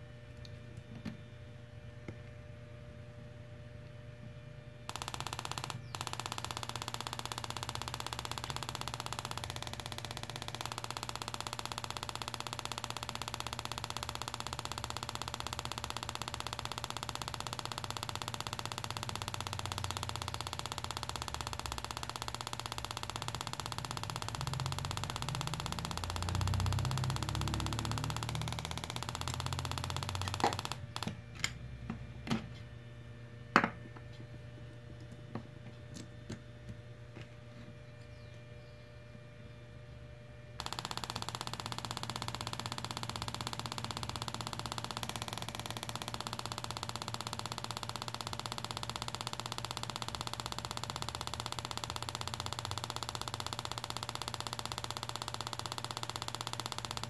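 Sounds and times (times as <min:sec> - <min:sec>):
crackling buzz of sparks: 0:04.9 - 0:31.2, 0:40.6 - 0:57.0.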